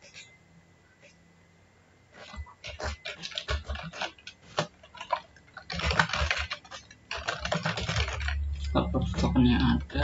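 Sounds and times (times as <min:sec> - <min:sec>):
keyboard typing: 0:02.2 - 0:10.0.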